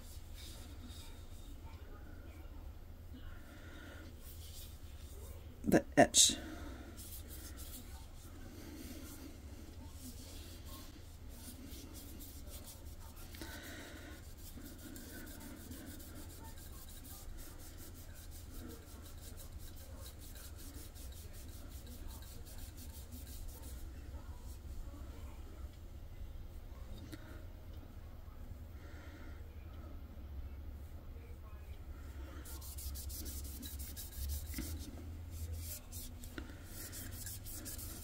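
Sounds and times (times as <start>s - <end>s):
cloth rubbing on glass: 14.2s - 23.8s, 32.4s - 38.0s.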